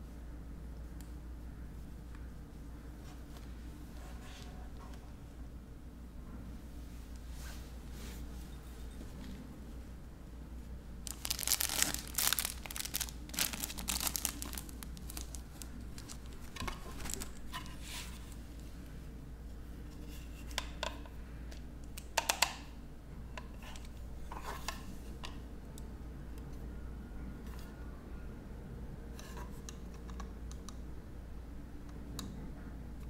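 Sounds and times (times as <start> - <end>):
packaging crinkling: 11.0 - 17.5.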